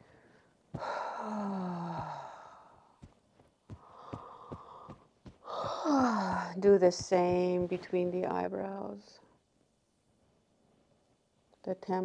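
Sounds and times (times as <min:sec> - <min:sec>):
woman sighing: 0:00.8 - 0:02.9, 0:03.8 - 0:06.6
fingertips tapping shoulders: 0:00.8 - 0:08.4.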